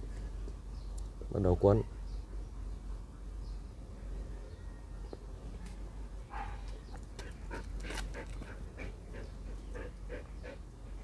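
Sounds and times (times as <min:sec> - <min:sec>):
dog panting: 0:07.2 - 0:11.0.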